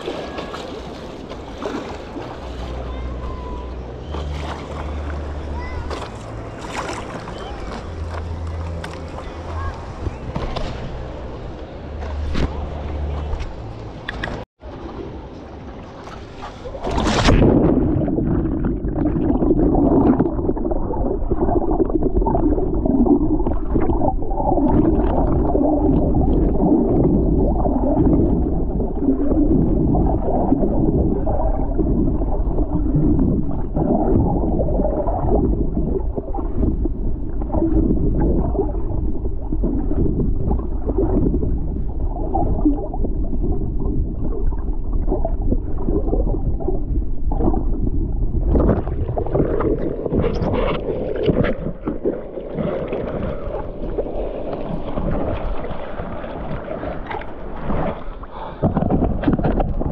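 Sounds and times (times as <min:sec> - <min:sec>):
muffled water gurgling and sloshing: 0:00.0 - 0:59.9.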